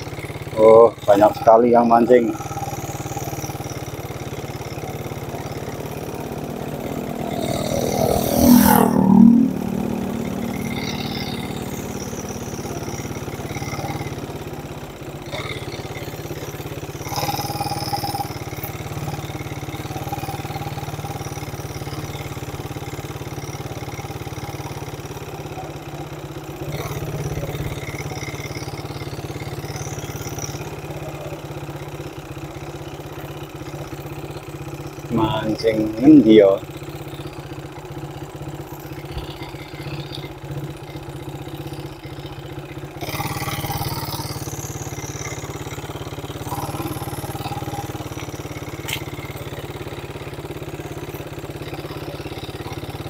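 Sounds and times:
vehicle engine running: 0:00.0 - 0:53.0
vehicle passing close by: 0:04.8 - 0:14.2.

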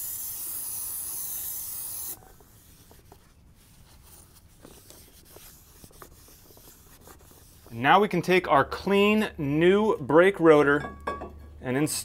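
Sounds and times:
aerosol spray hiss: 0:00.0 - 0:02.2.

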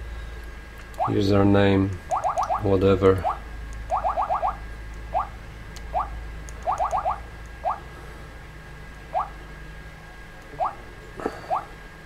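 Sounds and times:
stylus ticking on screen: 0:02.1 - 0:02.6, 0:05.2 - 0:07.8.

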